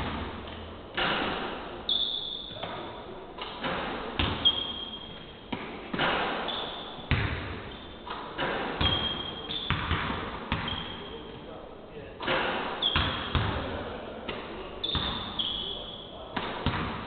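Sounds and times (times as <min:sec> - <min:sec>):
sneaker squeaks: 0:00.0 - 0:11.6, 0:12.2 - 0:16.9
basketballs bouncing on hardwood: 0:03.6 - 0:04.7, 0:07.1 - 0:10.9, 0:12.3 - 0:13.8, 0:14.9 - 0:15.4, 0:16.3 - 0:17.0.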